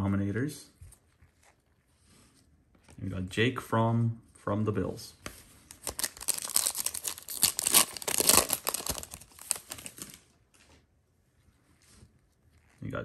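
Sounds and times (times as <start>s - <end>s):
foil pack tearing and crinkling: 5.7s - 10.2s.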